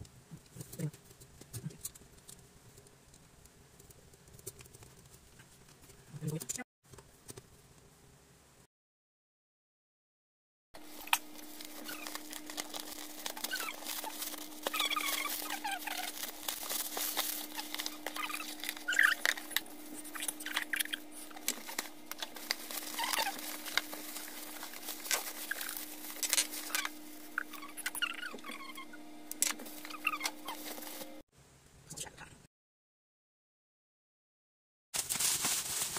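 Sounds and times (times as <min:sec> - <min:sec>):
packaging crinkling and rustling: 0:10.8 - 0:28.8, 0:29.4 - 0:31.2, 0:35.0 - 0:35.9
faint steady hum: 0:10.8 - 0:32.5
plastic clicks and squeaks: 0:17.5 - 0:22.3, 0:25.1 - 0:30.6.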